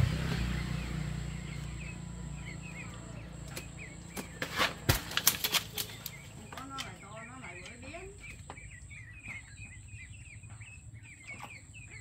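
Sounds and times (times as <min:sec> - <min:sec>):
birds chirping: 0:00.0 - 0:12.0
leaves rustling: 0:04.4 - 0:07.2.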